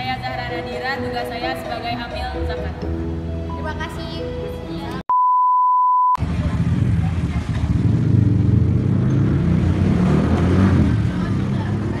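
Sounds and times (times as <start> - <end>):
low rumble of street noise: 6.2 - 12.0.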